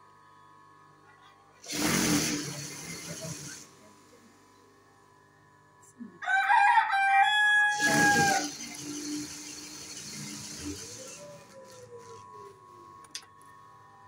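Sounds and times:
sewing machine whirring: 1.6s - 4.3s, 7.7s - 13.2s
rooster crowing: 6.2s - 8.5s.

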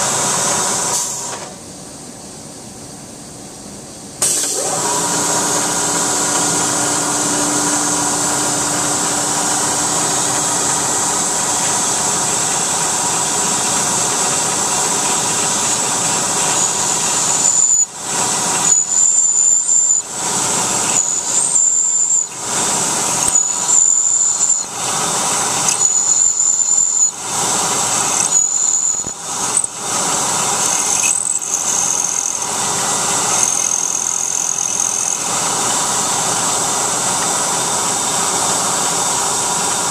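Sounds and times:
drill squealing into metal: 4.2s - 39.1s
milling machine spindle running: 4.2s - 39.9s.

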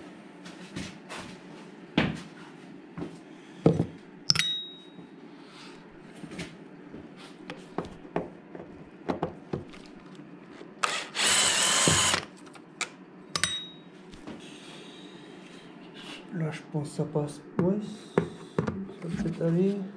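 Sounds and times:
tools and parts clicking: 4.3s - 4.7s, 12.0s - 13.7s
ringing metallic clink: 4.3s - 5.0s, 13.4s - 13.8s
cordless drill driving screw: 10.8s - 12.3s.

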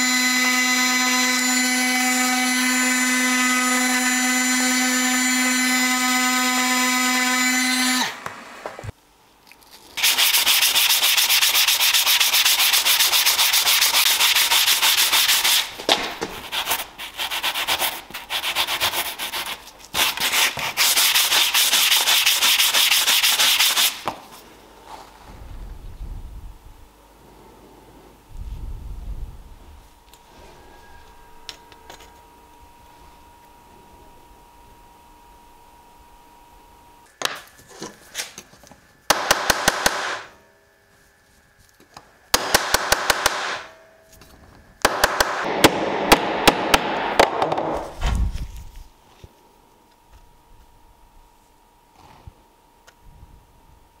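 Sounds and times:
sanding sponge scrubbing metal: 10.0s - 15.7s, 16.4s - 24.0s.

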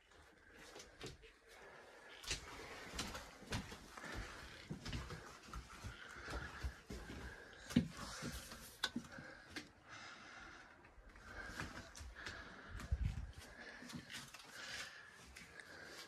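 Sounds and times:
breathing close to microphone: 1.5s - 16.0s
footsteps on floor: 2.2s - 9.2s.

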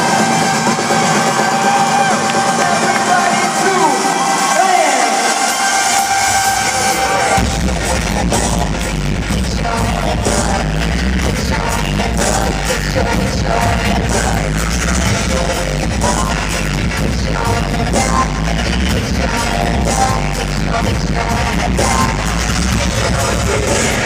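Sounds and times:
electronic dance-pop music: 0.0s - 24.0s
heavy bass beat: 0.0s - 24.0s
vocals: 0.0s - 24.0s.

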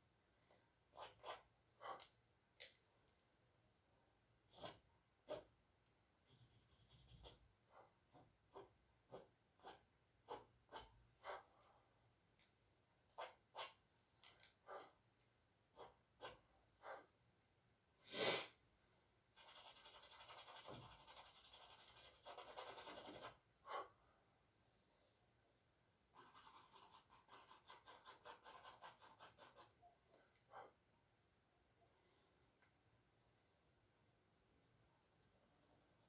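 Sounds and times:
charcoal scratching on canvas: 6.3s - 7.4s, 8.1s - 11.5s, 19.4s - 23.9s, 26.2s - 29.7s.

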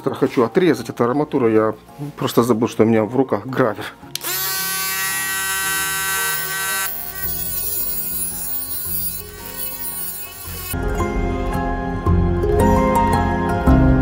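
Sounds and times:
background music: 0.0s - 14.0s
disc grinding steel rebar: 4.2s - 10.8s
rotary tool cutting disc whining: 4.2s - 10.8s.

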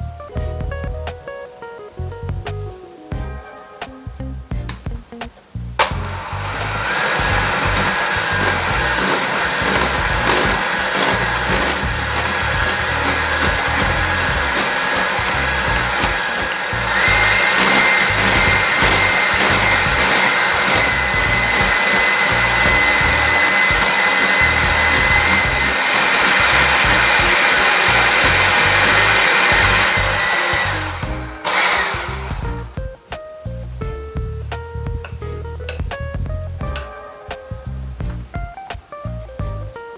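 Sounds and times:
electric hand mixer whining: 6.0s - 32.8s.

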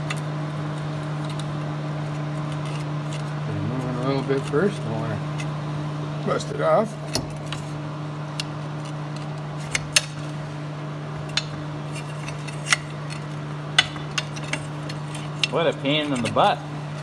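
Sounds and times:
low machine hum: 0.0s - 17.0s.

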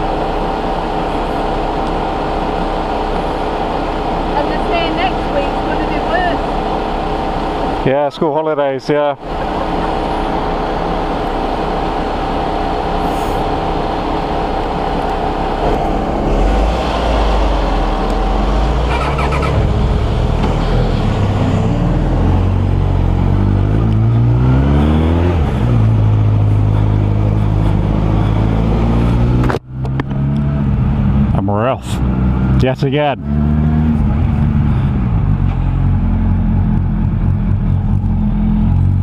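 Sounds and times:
car engines idling in traffic: 0.0s - 24.2s, 25.2s - 33.2s, 33.8s - 39.0s
engine revving: 9.2s - 39.0s.

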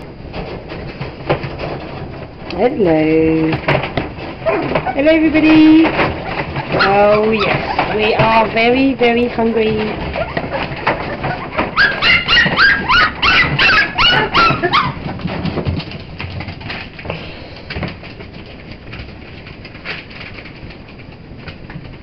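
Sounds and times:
puppies whining and yelping: 6.5s - 8.0s, 10.0s - 15.2s.

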